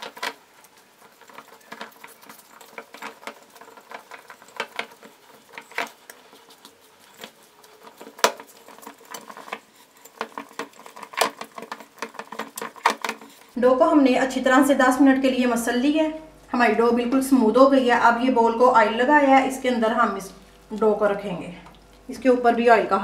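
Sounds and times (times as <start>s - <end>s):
dough patting and squishing: 0.0s - 13.6s, 19.2s - 22.1s.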